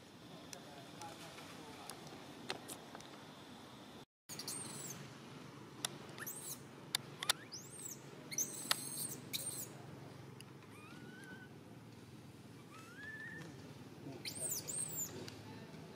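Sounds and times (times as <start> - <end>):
baby monkey screaming: 6.2 - 6.6, 7.3 - 9.7, 10.7 - 11.5, 12.7 - 13.4, 14.2 - 15.1.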